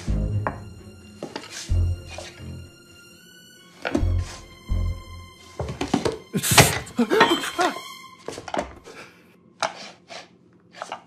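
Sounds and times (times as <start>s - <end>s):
objects knocking and clattering: 5.6s - 7.5s.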